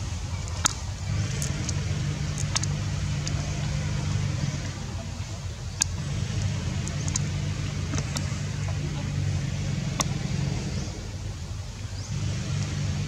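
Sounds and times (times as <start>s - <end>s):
engine running at low revs: 0.0s - 13.0s
faint sharp clicks: 0.3s - 4.8s, 5.6s - 9.1s, 9.8s - 11.0s.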